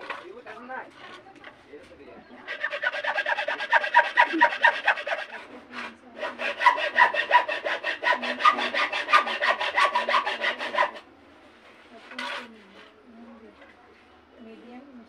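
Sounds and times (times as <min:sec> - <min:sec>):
hacksaw cutting bamboo: 0:02.5 - 0:11.0.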